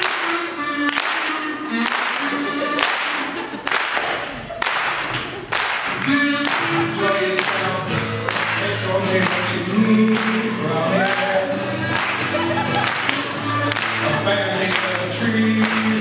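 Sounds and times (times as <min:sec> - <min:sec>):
men singing: 0:05.9 - 0:16.0
strummed acoustic guitar: 0:06.0 - 0:16.0.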